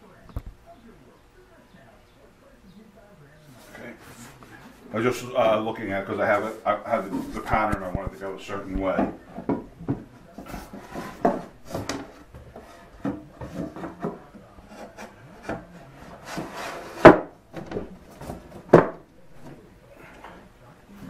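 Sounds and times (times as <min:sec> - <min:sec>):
wood scraping on wood: 0:05.9 - 0:19.6.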